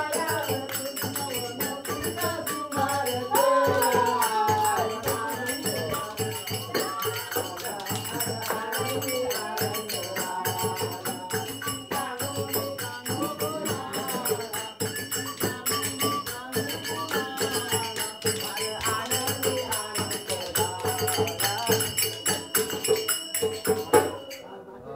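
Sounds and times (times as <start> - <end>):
person singing: 0.0 - 11.3
jingling percussion: 0.0 - 24.5.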